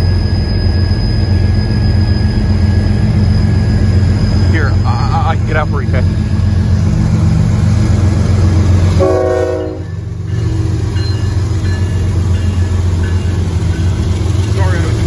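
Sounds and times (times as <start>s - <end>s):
locomotive engine drone: 0.0s - 15.0s
train horn blast: 8.9s - 10.0s.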